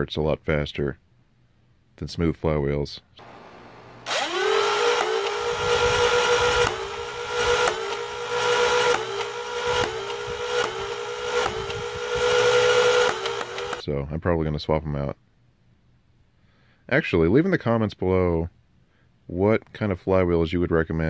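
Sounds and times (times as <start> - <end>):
flywheel motors whining: 3.2 - 13.8
toy blaster shots snapping: 4.1 - 5.5, 13.0 - 13.8.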